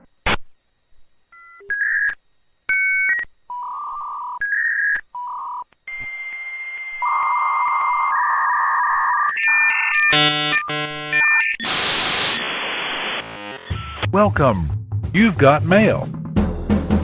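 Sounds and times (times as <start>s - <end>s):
dial-up modem handshake tones: 1.4s - 12.5s
touch-tone dialing beeps: 7.0s - 11.6s.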